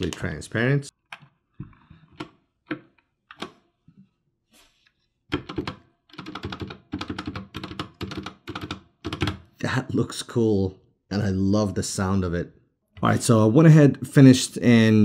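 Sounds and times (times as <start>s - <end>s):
mechanical keyboard typing: 5.3s - 9.5s.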